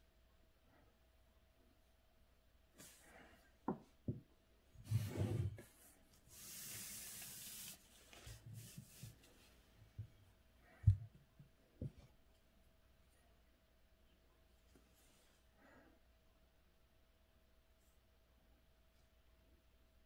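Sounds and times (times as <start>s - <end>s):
steady hiss: 6.2s - 9.8s.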